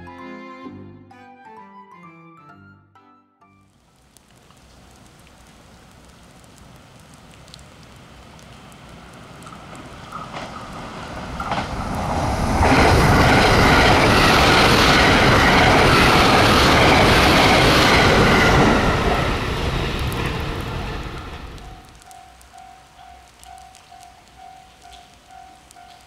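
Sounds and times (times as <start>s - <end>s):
electric train passing at speed: 9.0s - 22.7s
wheel clicks on rails: 9.4s - 17.5s.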